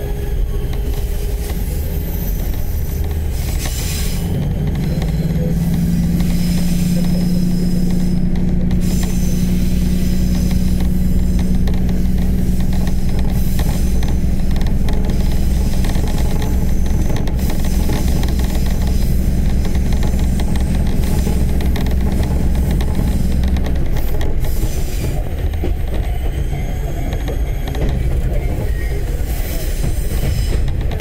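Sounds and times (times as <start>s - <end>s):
diesel railcar engine: 0.0s - 31.0s
wheels rumbling on rails: 0.0s - 31.0s.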